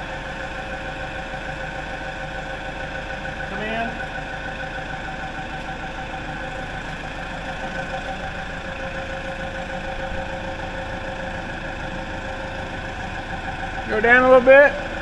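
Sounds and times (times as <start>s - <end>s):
forklift engine idling: 0.0s - 15.0s.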